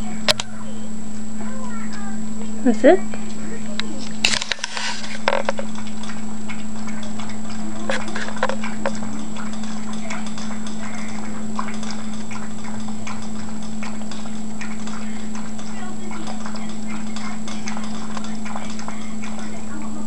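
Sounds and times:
steady low hum: 0.0s - 20.0s
dog crunching food: 4.0s - 19.9s
food bowl clinking: 4.2s - 20.0s.

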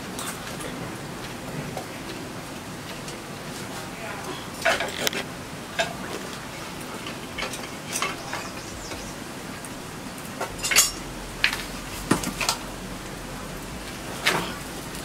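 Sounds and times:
firewood knocking and clattering: 10.1s - 12.7s.

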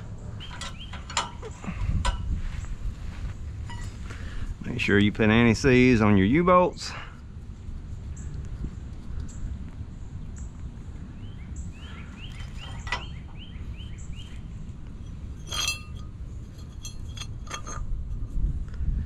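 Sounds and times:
bird chirping: 0.0s - 1.8s, 7.9s - 14.8s
steady low rumble: 0.0s - 19.0s
steel hardware clinking: 0.4s - 2.4s, 3.6s - 4.0s, 12.3s - 13.4s, 14.8s - 18.1s.

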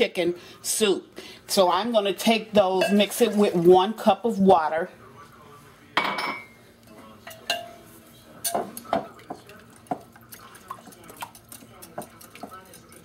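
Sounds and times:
metal utensil clinking against glass: 7.2s - 7.8s, 8.4s - 10.0s.

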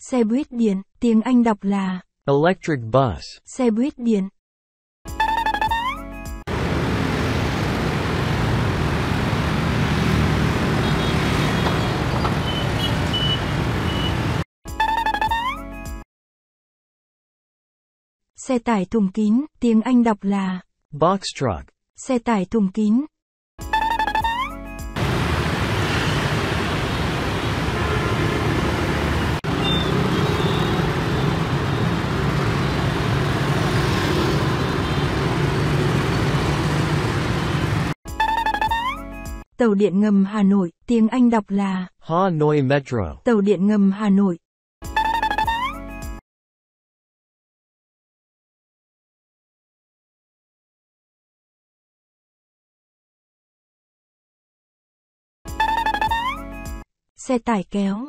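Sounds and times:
cars passing: 6.5s - 14.4s, 25.0s - 38.0s
scooters and motorbikes passing: 6.5s - 14.4s, 25.0s - 38.0s
street traffic: 6.5s - 14.5s, 25.0s - 38.0s.

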